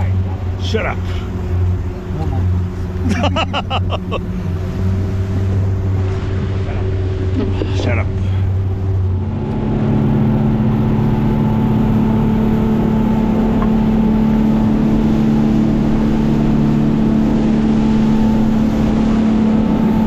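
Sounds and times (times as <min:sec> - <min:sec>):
boat engine running: 0:00.0 - 0:20.0
water rushing from hull: 0:00.0 - 0:20.0.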